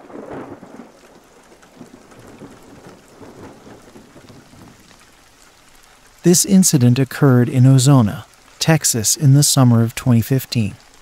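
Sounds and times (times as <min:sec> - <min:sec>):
thunder rumbling: 0:00.0 - 0:05.0
steady rainfall: 0:00.0 - 0:11.0.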